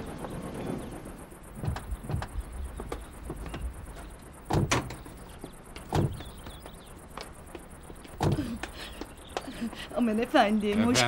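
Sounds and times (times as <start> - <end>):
heavy door thumps: 1.5 - 3.7, 4.4 - 5.2, 5.8 - 6.6, 8.1 - 8.6.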